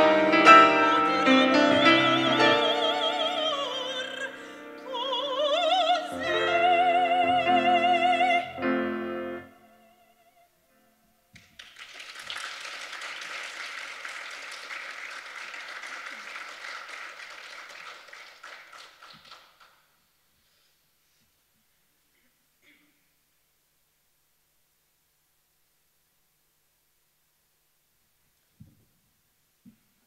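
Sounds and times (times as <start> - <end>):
soprano singing operatic song: 0.0 - 10.6
grand piano: 0.0 - 11.0
audience applause: 11.4 - 19.8.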